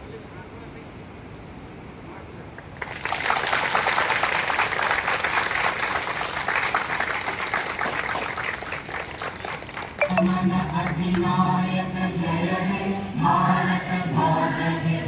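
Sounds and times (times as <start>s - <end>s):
group of people clapping: 2.6s - 11.4s.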